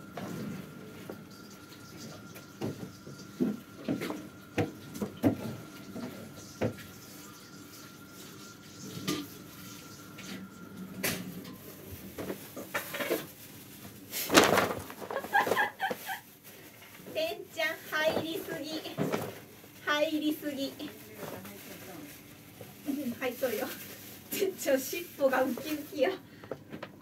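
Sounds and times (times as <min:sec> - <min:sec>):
paper bag crinkling: 0:11.6 - 0:26.2.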